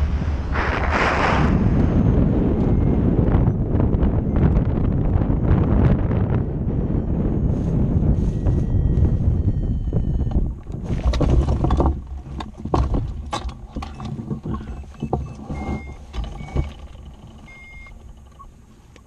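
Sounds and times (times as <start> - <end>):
wind rushing over microphone: 0.0 - 19.0
short high beeps: 8.2 - 10.4, 13.8 - 18.5
metal frame knocking and rattling: 10.8 - 18.4.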